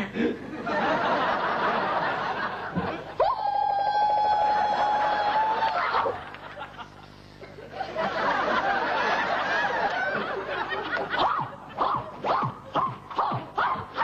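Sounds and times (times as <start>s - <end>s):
studio audience laughing: 0.4s - 3.2s, 4.7s - 11.8s
woman screaming: 3.2s - 6.1s.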